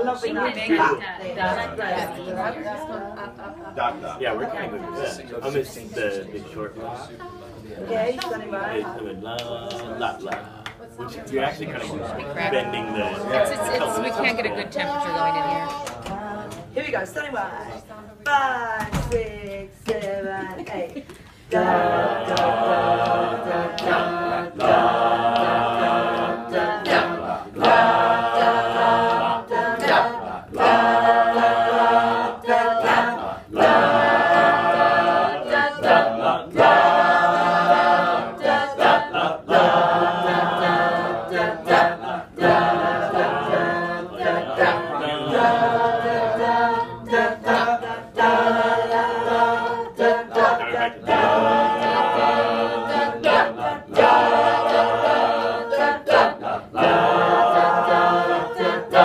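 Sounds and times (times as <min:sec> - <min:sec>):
group singing a cappella: 0:00.0 - 0:18.2, 0:18.9 - 0:59.0.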